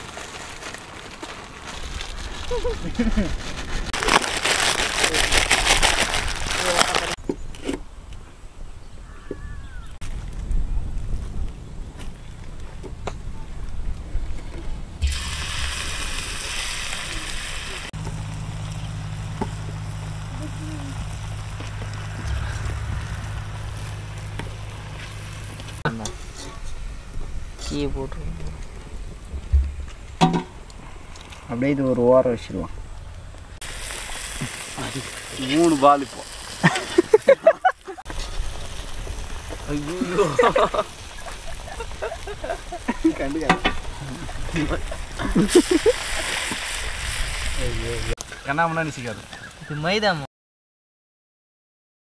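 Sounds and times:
food sizzling in hot oil: 15.0 - 26.1, 33.6 - 37.4, 38.0 - 48.2
low mechanical hum: 18.0 - 25.8.

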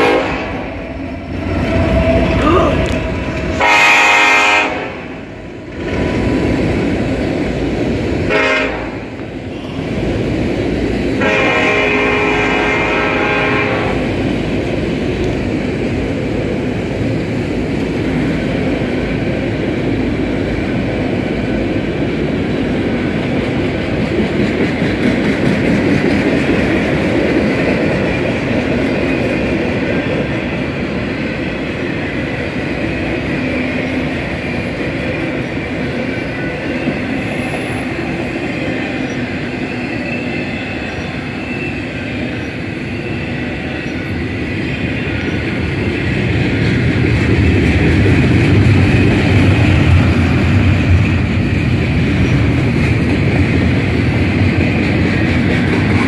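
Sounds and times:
locomotive horn: 0.0 - 0.7, 2.4 - 5.2, 8.3 - 9.1, 11.2 - 14.1
freight train wheels rumbling on rail: 0.0 - 56.0.

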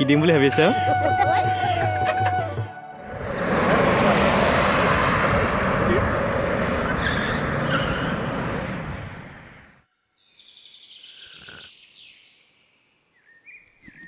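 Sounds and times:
jet airliner engine rush: 3.0 - 9.8.

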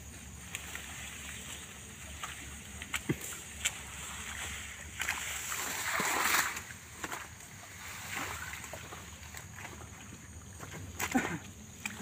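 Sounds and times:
fronds rustling and squelching: 0.0 - 12.0
palm fronds splatting into mud: 5.0 - 7.3, 10.9 - 12.0.

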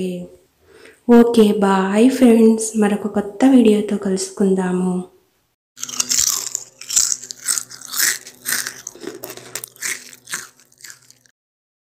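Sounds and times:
person chewing crisp chips: 5.8 - 11.4.

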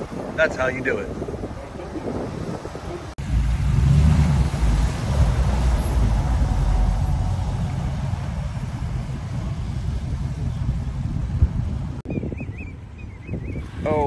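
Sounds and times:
tyres splashing through water: 2.0 - 10.3
truck engine running: 3.2 - 12.0.

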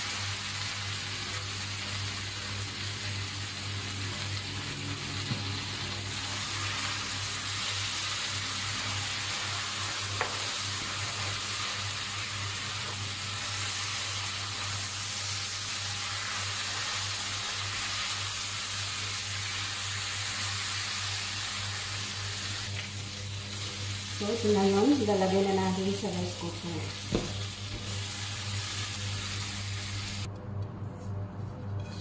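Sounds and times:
food sizzling in a wok: 0.0 - 30.3
steady low hum: 22.0 - 32.0.

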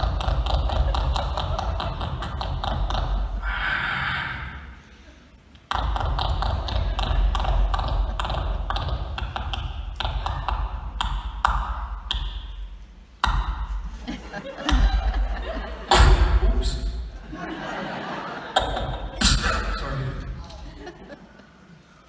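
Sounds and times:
beatboxing through speakers: 0.0 - 4.8, 5.6 - 14.0, 15.9 - 17.2, 18.5 - 20.0.

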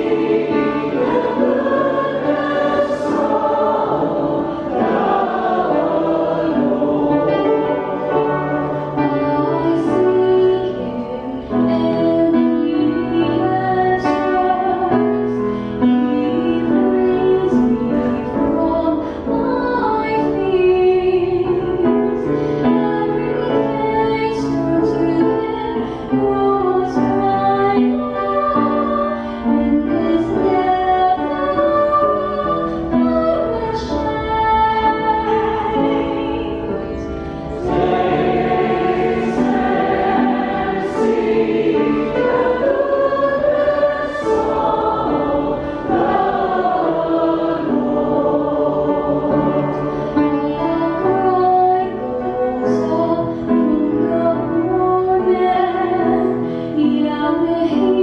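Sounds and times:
voices singing along: 0.0 - 10.8, 37.4 - 50.0.

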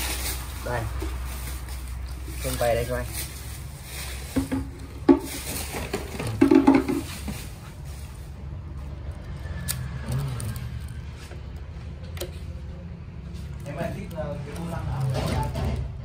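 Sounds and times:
wire loom rustling: 0.0 - 8.3.

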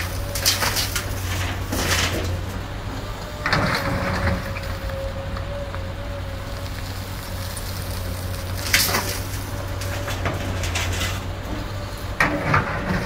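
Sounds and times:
bucket scraping and crunching: 0.0 - 2.6, 6.6 - 13.0
excavator diesel engine running: 0.0 - 13.0
soil and stones rattling: 0.0 - 13.0.

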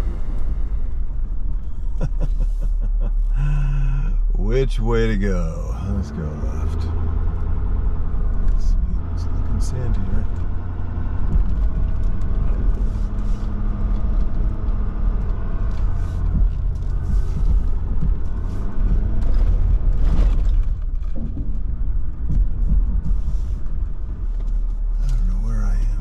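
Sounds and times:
truck engine and road rumble: 0.0 - 26.0
knocks from bumps: 15.8 - 24.5.

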